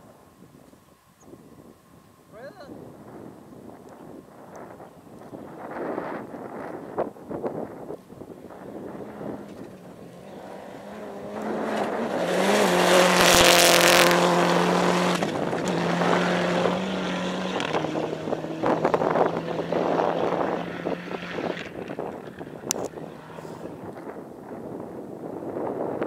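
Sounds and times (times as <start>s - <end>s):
rally car engine passing: 5.6s - 25.3s.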